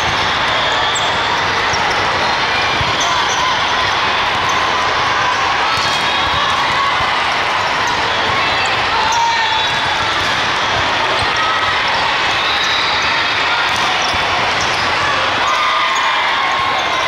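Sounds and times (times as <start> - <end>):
sneakers squeaking on court floor: 0.1 - 3.7, 7.9 - 16.1
volleyballs bouncing and hit: 1.3 - 8.9, 9.5 - 12.0, 13.6 - 15.6.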